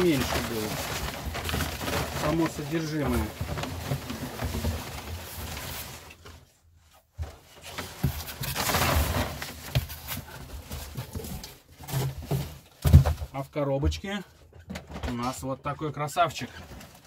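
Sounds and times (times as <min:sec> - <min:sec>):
packing paper rustling and crackling: 0:00.0 - 0:06.6, 0:07.2 - 0:13.2
cardboard box being handled: 0:07.2 - 0:13.2.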